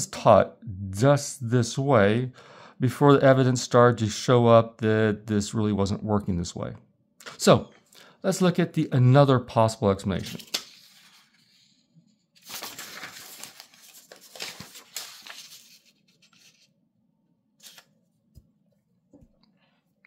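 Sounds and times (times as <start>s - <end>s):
paper rustling and sliding: 10.1s - 16.8s, 17.6s - 18.0s.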